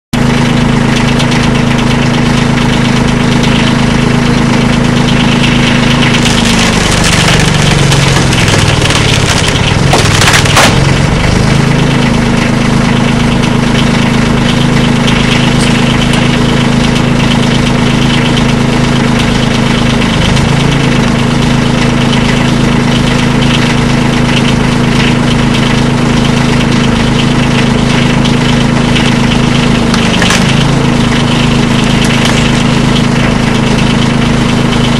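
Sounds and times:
engine running: 0.2 - 34.9
wood cracking and splintering: 5.4 - 11.8, 28.1 - 34.0.

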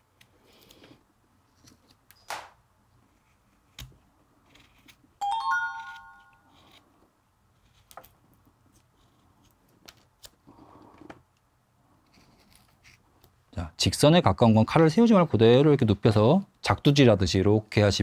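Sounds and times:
knife scraping wood: 3.1 - 5.2
bell-like chime: 5.2 - 6.5.

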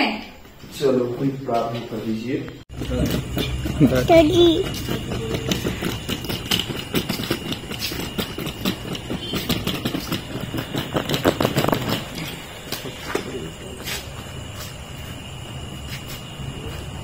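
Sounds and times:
suitcase wheels rattling on pavers: 2.7 - 17.0
footsteps: 2.8 - 17.0.

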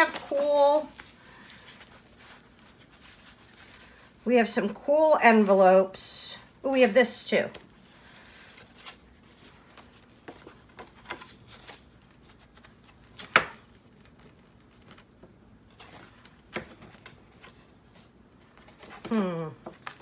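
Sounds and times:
paper rustling and tapping: 8.8 - 17.6.

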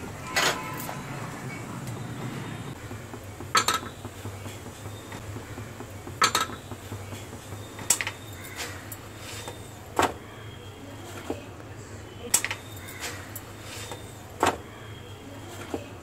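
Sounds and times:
steel plates and bowls knocking: 2.9 - 9.9.

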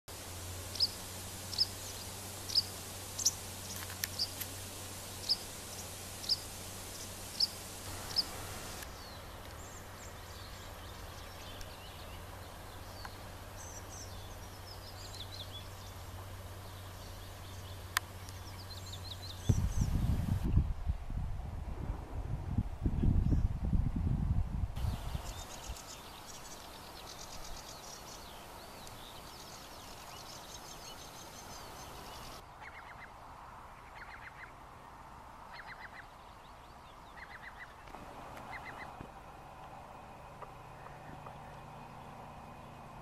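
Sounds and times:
steady low hum: 0.1 - 23.4, 37.8 - 43.0
birdsong with high trills: 0.6 - 4.4, 5.0 - 20.5, 24.8 - 33.1, 35.5 - 39.0
songbird high call: 0.7 - 4.4, 5.0 - 20.3, 24.8 - 33.1, 35.5 - 39.0
wind rumble on microphone: 18.4 - 25.9.

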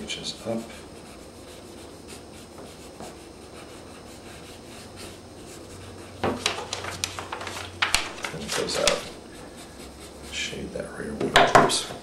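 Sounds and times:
pencil scratching on paper: 0.2 - 6.4, 8.5 - 10.6.

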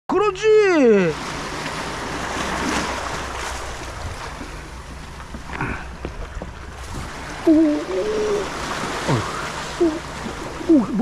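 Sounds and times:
low steady hum: 0.2 - 11.0
sea water sloshing: 0.7 - 11.0
short wavering voice: 7.4 - 8.5.

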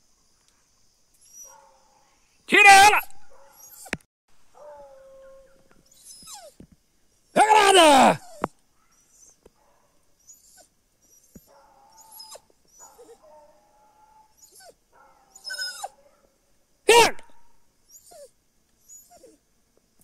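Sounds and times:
hounds baying and yelping: 1.2 - 4.0, 4.6 - 6.6, 8.1 - 16.4.

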